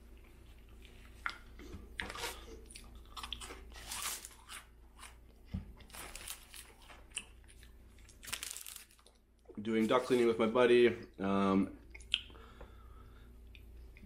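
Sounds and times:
small crunches: 5.8s - 9.2s
wet mouth clicks: 11.9s - 12.4s.

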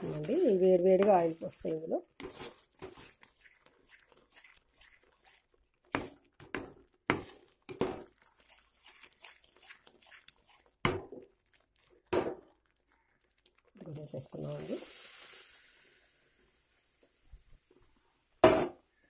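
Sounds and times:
ladle scraping pan: 0.0s - 5.4s.

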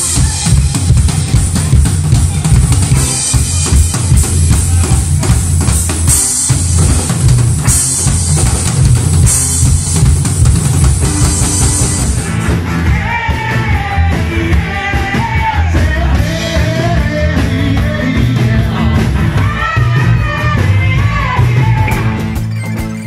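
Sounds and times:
rock band playing: 0.0s - 23.0s
person singing: 11.3s - 22.2s.

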